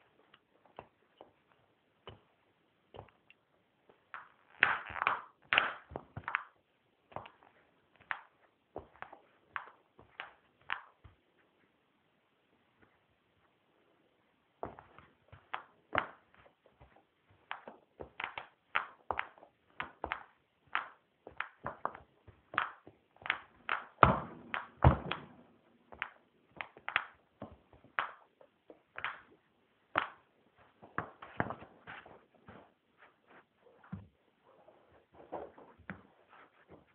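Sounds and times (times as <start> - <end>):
footsteps stamping on rug: 21.2 - 26.7, 30.5 - 36.9.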